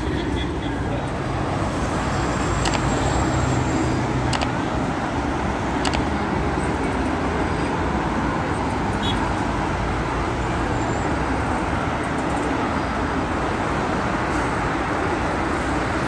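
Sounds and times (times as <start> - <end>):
road traffic rumble: 0.0 - 16.0
sharp ticks: 2.6 - 3.0, 4.2 - 4.7, 5.8 - 6.2.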